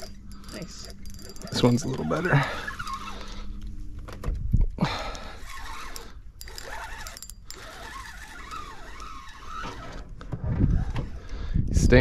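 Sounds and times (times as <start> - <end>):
fishing reel whirring and clicking: 0.0 - 3.7, 4.9 - 10.2.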